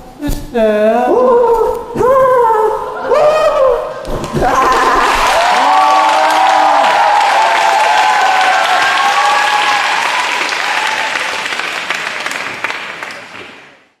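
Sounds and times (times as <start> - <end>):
audience applauding: 4.1 - 14.0.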